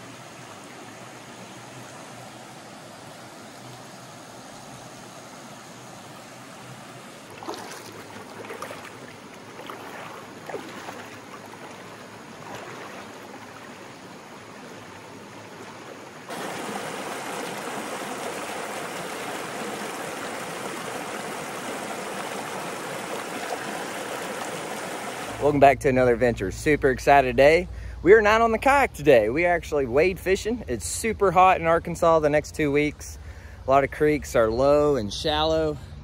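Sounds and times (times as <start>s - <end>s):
creek water flowing: 0.0s - 36.0s
water splashing: 7.2s - 25.6s.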